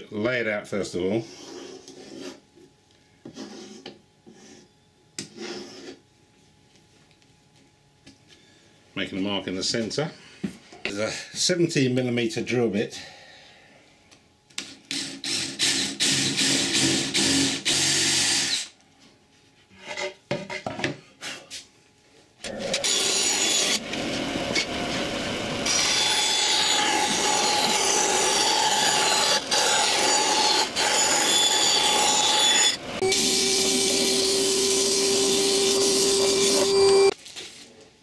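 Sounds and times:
bandsaw cutting wood: 0:14.9 - 0:18.7, 0:22.4 - 0:37.2
cordless drill boring through wood: 0:14.9 - 0:18.7, 0:22.4 - 0:37.2.

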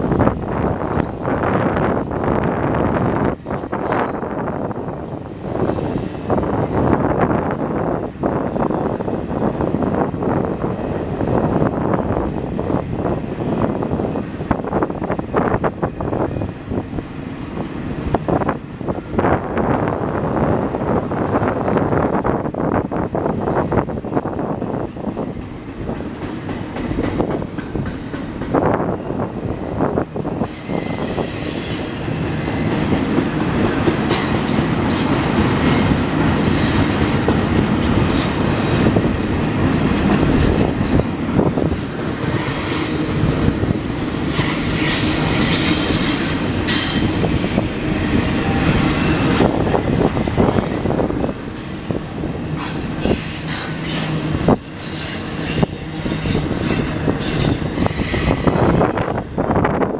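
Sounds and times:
train wheels rumbling on rail: 0:00.0 - 0:59.9
high-pitched wheel squeal: 0:30.4 - 0:32.7, 0:53.1 - 0:59.9.

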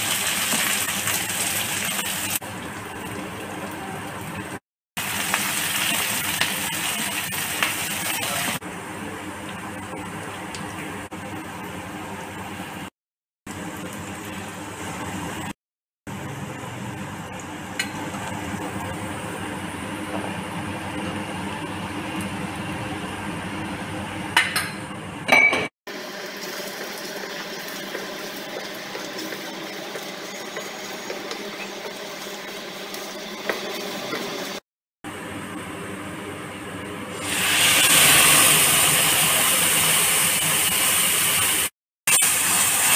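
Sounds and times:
food sizzling in oil: 0:00.0 - 0:03.3, 0:05.0 - 0:08.6, 0:25.9 - 0:34.6, 0:37.1 - 0:42.9
stirring in pan: 0:26.2 - 0:34.6.

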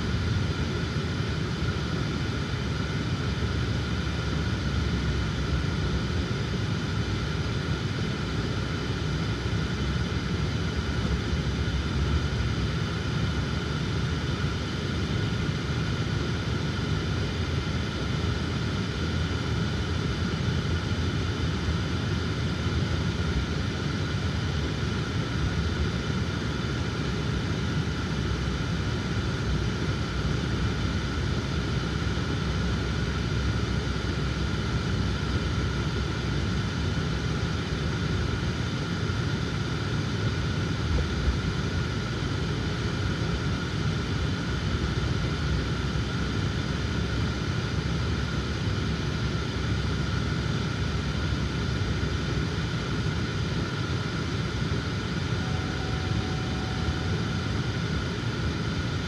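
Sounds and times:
faint steady tone: 0:53.2 - 0:59.0.

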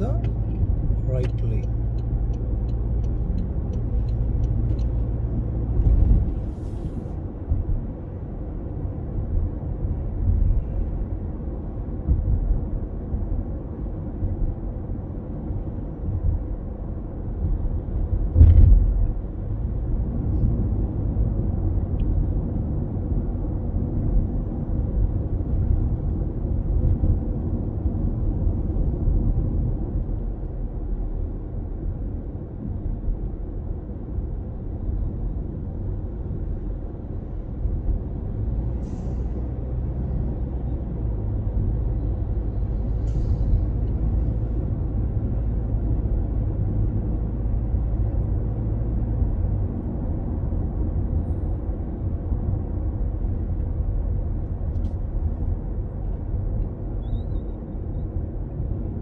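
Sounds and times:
turn signal ticking: 0:00.0 - 0:05.3
car tyre and engine rumble: 0:00.0 - 0:59.0.

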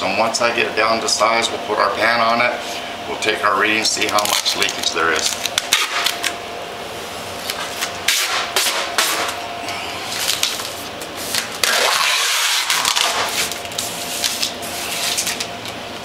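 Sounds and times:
faint steady hum: 0:00.0 - 0:16.0
tape ripping off roll: 0:10.2 - 0:15.5.

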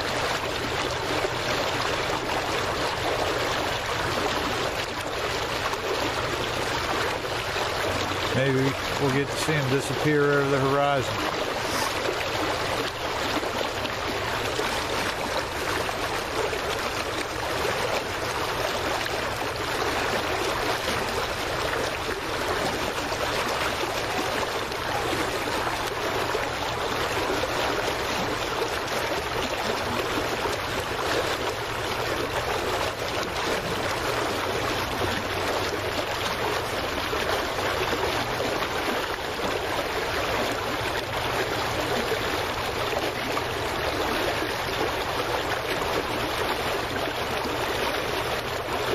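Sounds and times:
water splashing and lapping: 0:00.0 - 0:48.9.

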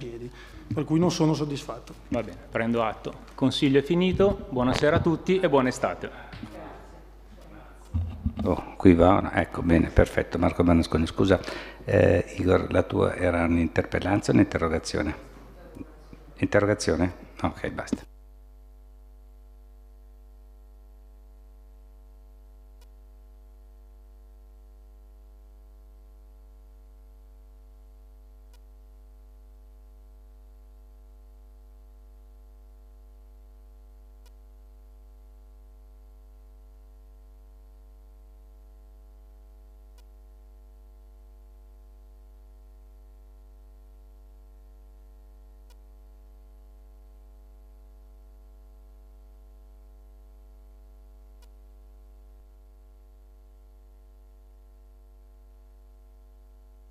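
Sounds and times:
electrical mains hum: 0:00.0 - 0:56.9
faint click: 0:22.8 - 0:23.0, 0:28.5 - 0:28.7, 0:34.2 - 0:34.4, 0:39.9 - 0:40.2, 0:45.6 - 0:45.9, 0:51.4 - 0:51.6.

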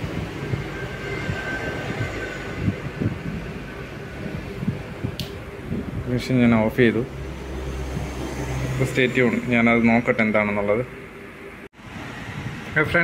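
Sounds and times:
fan hum: 0:00.0 - 0:13.0
connector click: 0:05.2 - 0:05.4.

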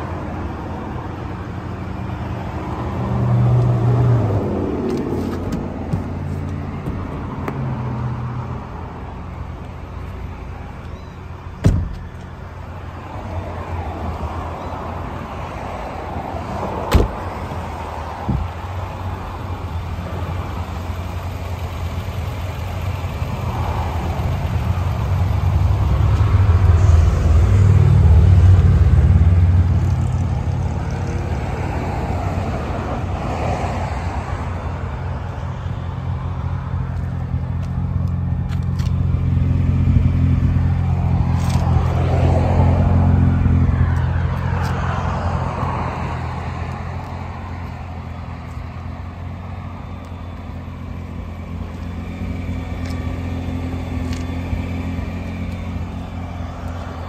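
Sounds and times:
car engine idling: 0:04.2 - 0:31.4, 0:43.3 - 0:57.0.

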